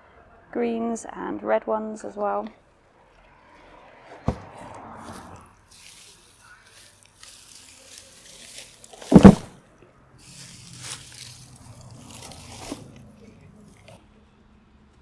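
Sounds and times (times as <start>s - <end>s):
loud thump: 4.2s - 4.5s, 9.1s - 9.6s
dry stems crackling and rustling: 4.9s - 9.6s, 10.2s - 14.0s
roots tearing from soil: 5.0s - 9.6s, 10.2s - 14.0s.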